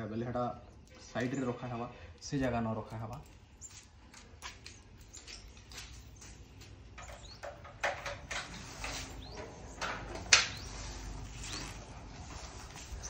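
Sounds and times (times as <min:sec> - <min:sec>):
bird chirps: 0:04.6 - 0:07.7, 0:08.8 - 0:11.9.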